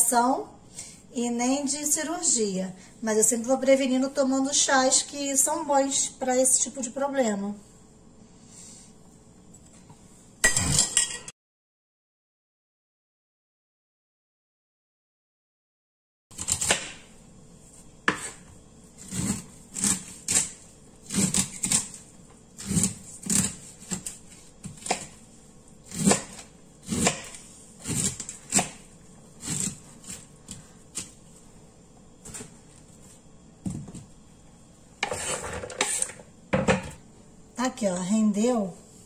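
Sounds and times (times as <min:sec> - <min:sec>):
kernels scraped into plastic bowl: 0:35.0 - 0:36.2.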